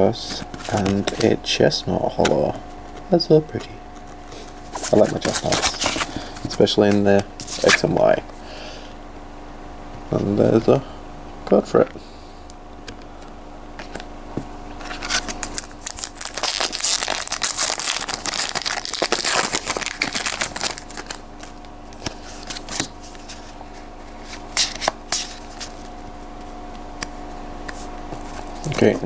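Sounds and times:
cards being shuffled: 0.3s - 1.3s, 3.6s - 8.0s, 14.8s - 29.0s
foil wrapper crinkling: 4.8s - 7.8s, 14.8s - 25.9s.

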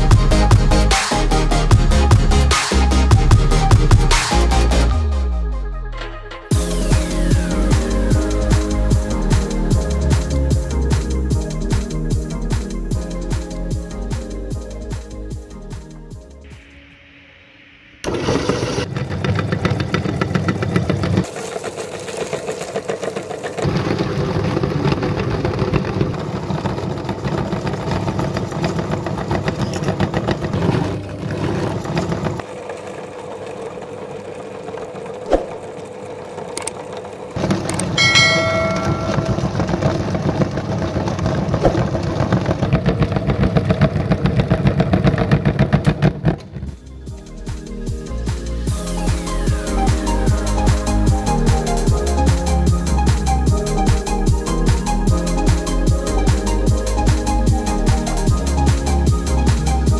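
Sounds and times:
electric meat grinder grinding: 18.1s - 38.0s.

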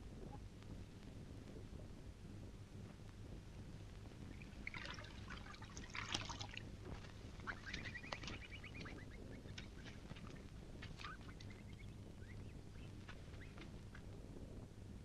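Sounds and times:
water splashing and dripping: 4.3s - 11.6s.

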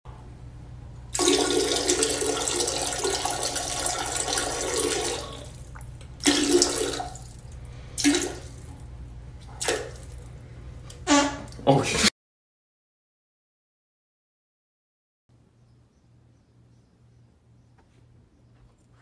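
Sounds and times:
toilet flushing: 1.1s - 8.9s.

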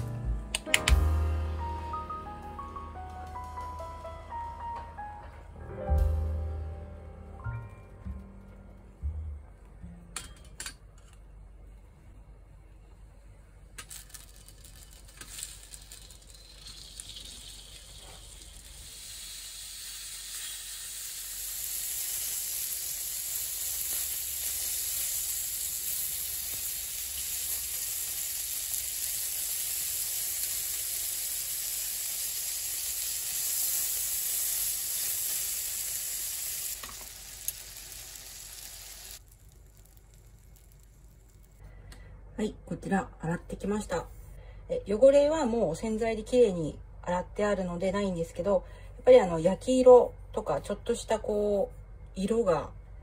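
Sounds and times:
sausages sizzling in a pan: 16.2s - 41.6s.

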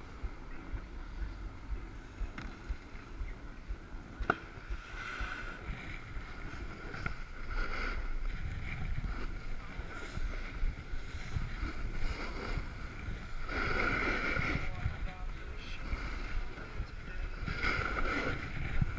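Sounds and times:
wind buffeting microphone: 0.0s - 18.9s
edges scraping over snow: 4.9s - 16.6s, 17.2s - 18.9s.

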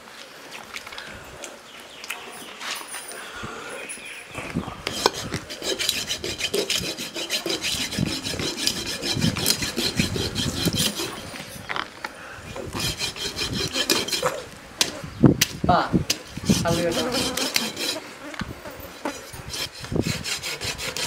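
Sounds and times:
knife scraping fish scales: 4.9s - 11.7s, 12.5s - 14.5s, 16.1s - 18.0s, 18.9s - 21.0s.

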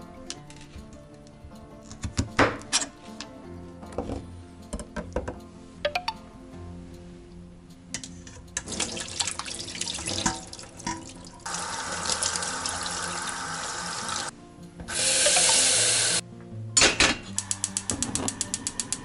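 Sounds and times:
bowl and colander clattering: 8.6s - 11.4s
water filling a saucepan: 8.6s - 14.3s, 14.9s - 16.2s.

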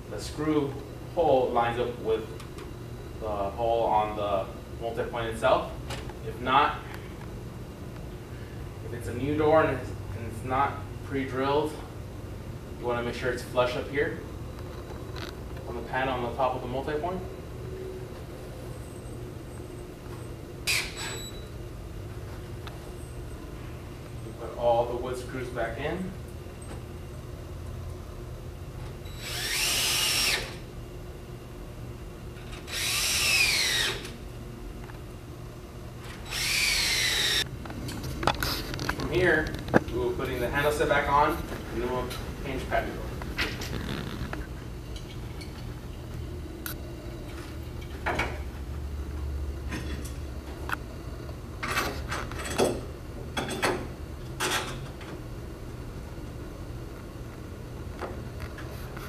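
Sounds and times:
low steady hum: 0.0s - 59.0s
cordless drill driving screws: 29.2s - 30.6s, 32.7s - 34.1s, 36.2s - 37.4s.

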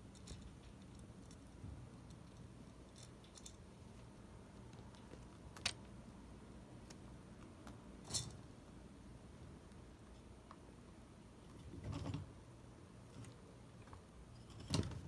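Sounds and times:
low room hum: 0.0s - 15.0s
chinchilla moving in wire cage: 14.4s - 15.0s.

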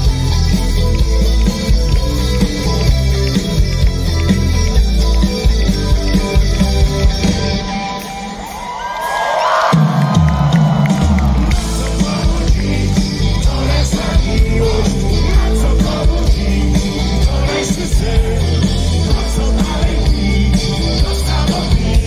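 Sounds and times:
live rock band playing: 0.0s - 22.0s
lead singer: 10.8s - 22.0s.

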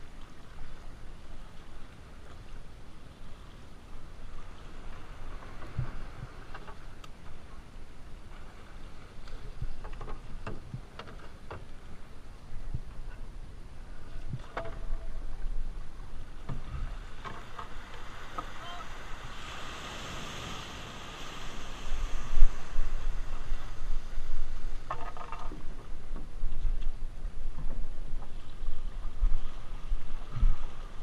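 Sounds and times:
paddle splashes: 0.0s - 13.2s, 13.9s - 31.0s
water sloshing along hull: 0.0s - 31.0s
water washing in shallows: 13.8s - 31.0s
wind buffeting microphone: 19.1s - 31.0s.

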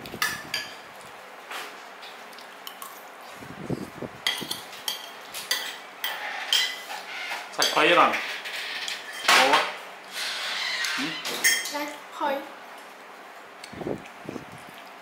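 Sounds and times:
cutlery clinking against dishes: 4.2s - 9.8s, 11.2s - 11.8s.

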